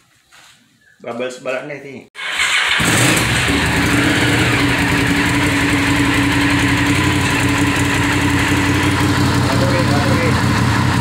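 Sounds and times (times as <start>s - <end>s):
motorcycle engine idling: 3.2s - 11.0s.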